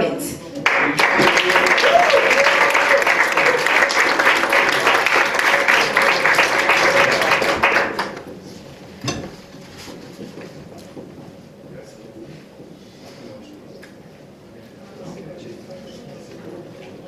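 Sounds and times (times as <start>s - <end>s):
audience applauding: 0.6s - 8.3s.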